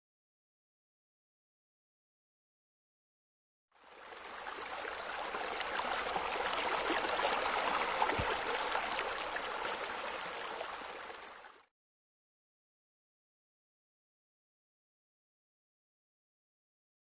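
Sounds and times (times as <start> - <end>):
water trickling: 3.8 - 11.6.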